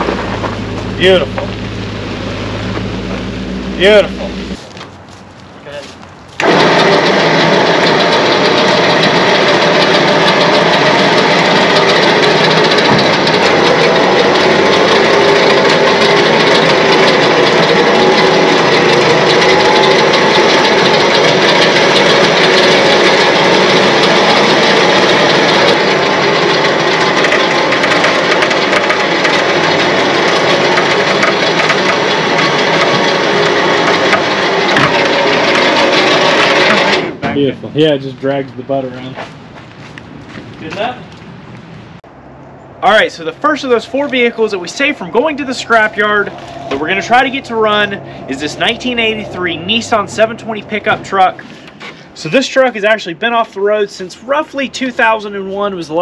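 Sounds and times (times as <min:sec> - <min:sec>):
motor running under load: 0:00.0 - 0:04.6, 0:06.4 - 0:37.4, 0:43.9 - 0:52.1
wheel scraping while dragged: 0:00.0 - 0:37.2, 0:43.8 - 0:50.0.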